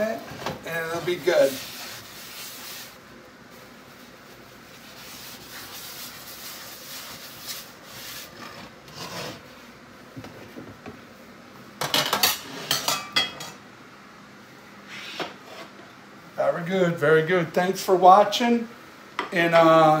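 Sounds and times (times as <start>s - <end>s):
paper towel scrubbing skillet: 0.7s - 9.7s
cookware clattering: 11.8s - 13.6s.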